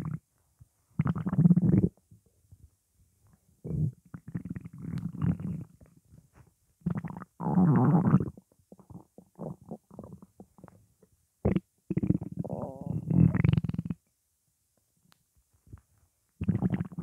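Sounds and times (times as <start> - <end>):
stomach growling and gurgling: 1.0 - 2.0, 3.6 - 6.0, 6.8 - 10.9, 11.5 - 14.0, 16.4 - 17.0.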